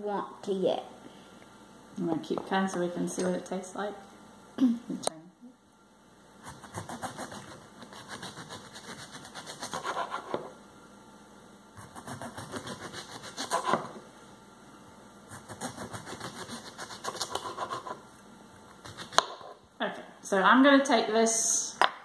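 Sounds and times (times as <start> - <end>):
knife sawing into cucumber: 6.5 - 10.4, 11.8 - 13.9, 15.3 - 18.0.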